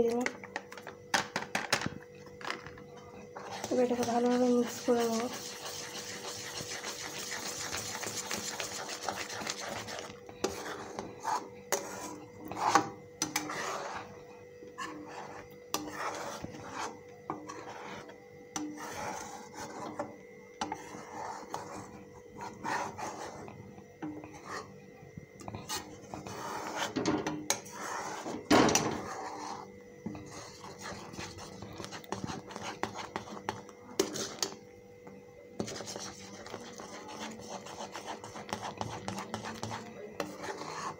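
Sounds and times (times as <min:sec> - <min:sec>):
spatula scraping metal pan: 0:03.4 - 0:14.1, 0:14.8 - 0:23.5, 0:25.6 - 0:33.3, 0:35.7 - 0:40.9.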